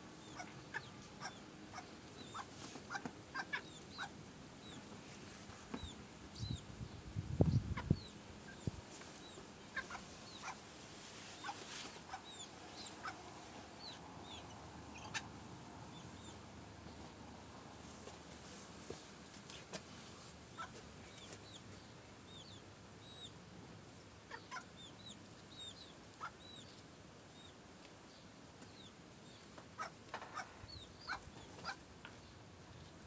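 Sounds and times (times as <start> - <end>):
clucking: 0.2 - 4.1, 9.8 - 10.6
chicks peeping: 0.2 - 4.9, 5.7 - 10.6, 11.2 - 16.4, 20.6 - 23.3, 24.3 - 26.8, 29.8 - 31.8.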